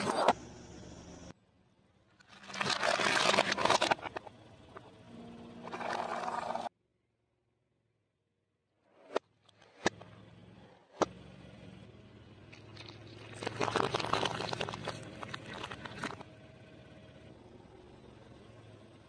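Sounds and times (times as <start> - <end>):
crackling and crunching: 2.2 - 4.2.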